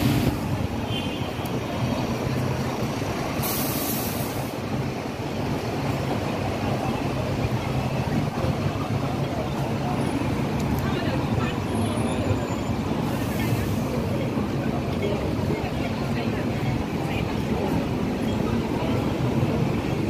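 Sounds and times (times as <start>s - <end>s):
bus engines humming: 0.0s - 20.0s
street traffic rumble: 0.0s - 20.0s
short hiss: 3.4s - 4.5s.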